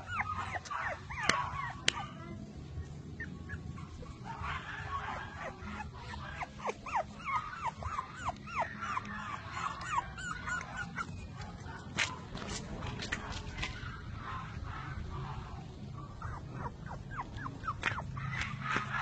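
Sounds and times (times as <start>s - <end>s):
puppy whimpering and yipping: 0.0s - 14.7s, 15.9s - 19.0s.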